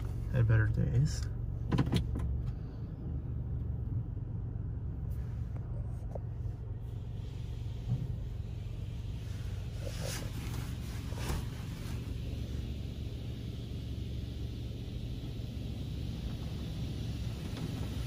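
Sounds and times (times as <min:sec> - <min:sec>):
car wash low rumble: 0:00.0 - 0:18.0
faint hiss: 0:06.9 - 0:18.0.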